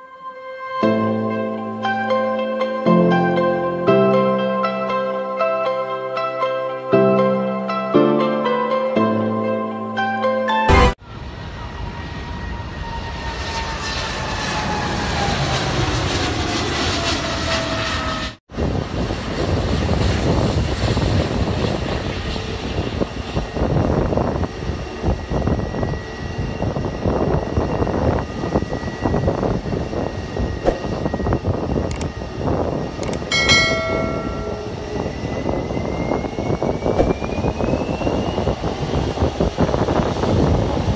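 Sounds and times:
airliner landing jet noise: 10.7s - 40.9s
jet airliner passing overhead: 10.7s - 40.9s.

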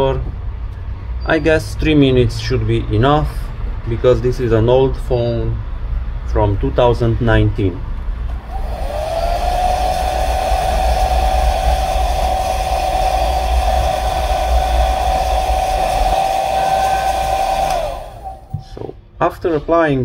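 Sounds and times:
hair dryer running: 8.4s - 18.6s.

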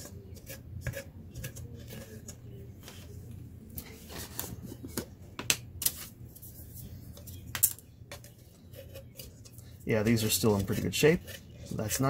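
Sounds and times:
stick scraping: 0.0s - 3.1s, 8.1s - 12.0s.

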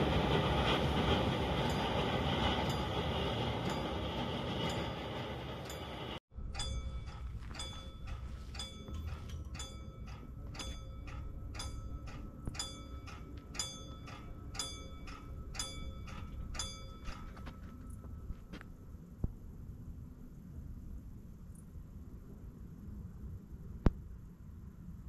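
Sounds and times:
level crossing warning bell: 0.0s - 18.6s.

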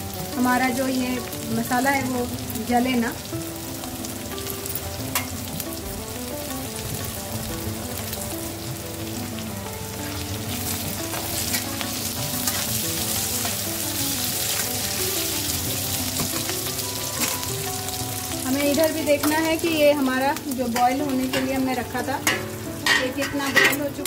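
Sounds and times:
onions sizzling in hot oil: 0.0s - 24.0s
metal spoon scraping pan: 22.2s - 24.0s.

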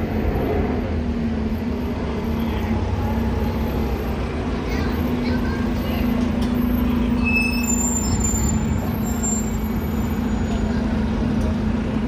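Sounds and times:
bus engine rumbling: 0.0s - 12.0s
high-pitched squeals: 6.8s - 10.7s.

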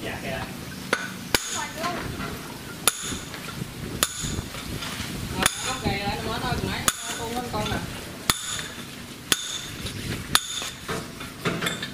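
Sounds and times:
hammer striking metal: 0.9s - 1.9s, 2.8s - 3.4s, 4.0s - 4.5s, 5.4s - 5.8s, 6.9s - 7.4s, 8.3s - 11.9s.

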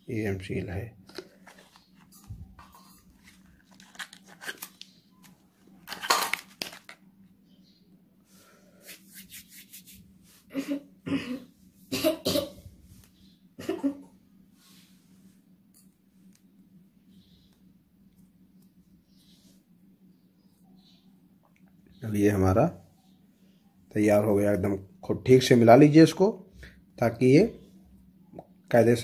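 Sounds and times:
wrapper tearing and crinkling: 3.1s - 7.0s
man coughing: 10.5s - 12.6s.

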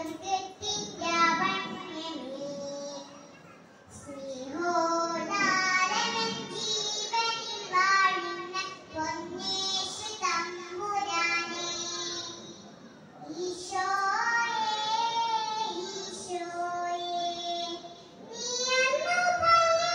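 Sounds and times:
girl singing: 0.0s - 12.6s, 13.2s - 19.9s.

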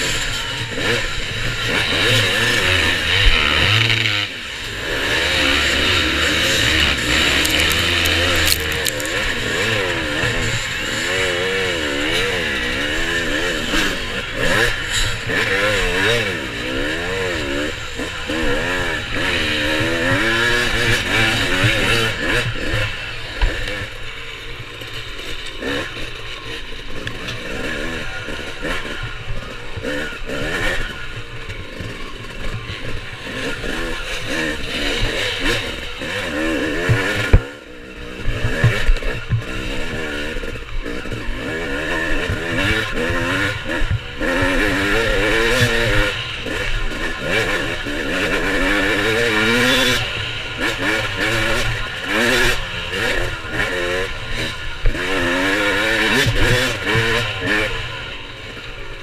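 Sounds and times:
dirt bike engine revving: 0.0s - 59.0s
bike clattering over rocks: 7.4s - 9.2s.

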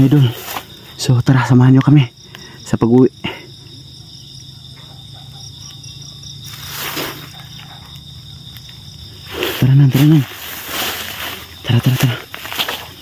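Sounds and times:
rustle in dry leaf litter: 0.0s - 0.7s, 6.4s - 7.6s, 9.2s - 13.0s
crickets trilling: 0.0s - 13.0s.

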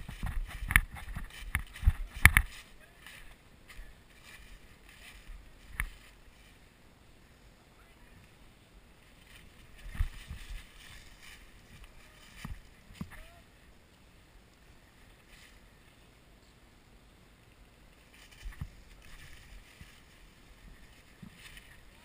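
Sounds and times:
footsteps in dry leaves: 0.0s - 6.7s, 9.0s - 13.5s, 18.0s - 22.0s.

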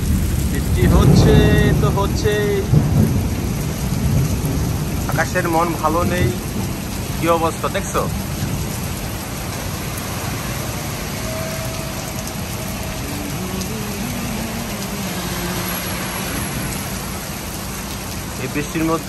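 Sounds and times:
heavy rain pouring: 0.0s - 19.0s.

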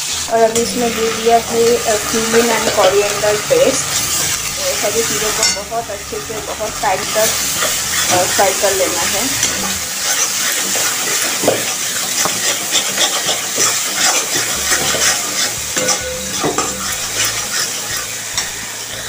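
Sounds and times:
paste sizzling in hot oil: 0.0s - 19.0s
spatula scraping a pan: 0.0s - 19.0s.

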